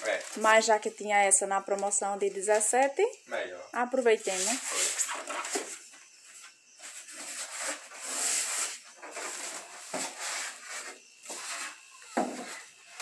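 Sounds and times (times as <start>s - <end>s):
packing material rustling and scraping: 0.0s - 0.9s, 4.2s - 5.9s, 6.8s - 13.0s.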